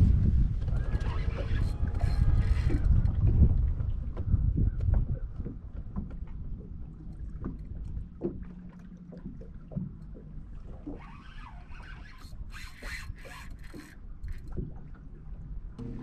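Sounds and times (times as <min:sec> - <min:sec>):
wind and water rumble: 0:00.0 - 0:16.0
short rasping scrapes: 0:11.1 - 0:14.4.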